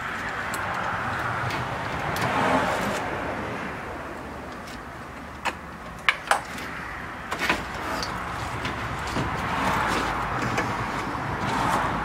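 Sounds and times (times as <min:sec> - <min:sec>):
sharp clicks and knocks: 0:04.5 - 0:06.7.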